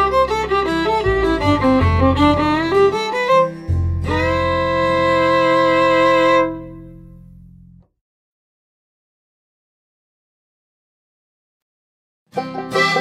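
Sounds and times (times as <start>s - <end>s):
instrumental background music: 0.0s - 7.9s, 12.3s - 13.0s.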